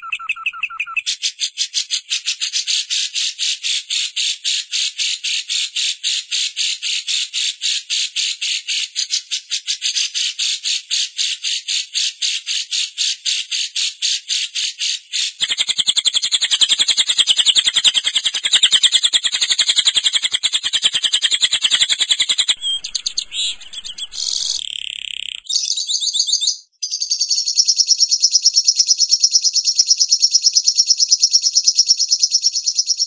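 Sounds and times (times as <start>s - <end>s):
high-pitched chattering call: 0.0s - 1.2s, 15.4s - 25.4s.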